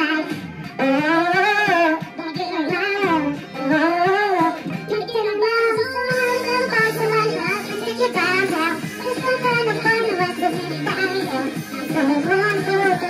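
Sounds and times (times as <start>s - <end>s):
karaoke backing track: 0.0s - 13.0s
person singing karaoke: 0.0s - 13.0s.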